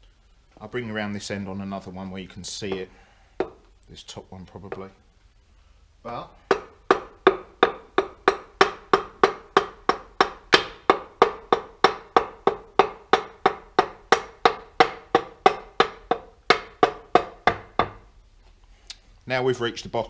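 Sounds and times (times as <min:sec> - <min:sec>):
ringing knocks on metal: 0:06.4 - 0:18.0.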